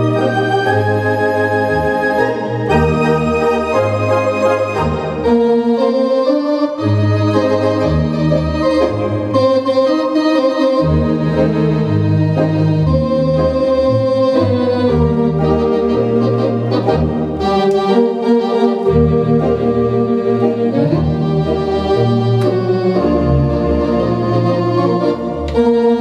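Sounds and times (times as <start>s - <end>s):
organ playing sustained chords: 0.0s - 26.0s.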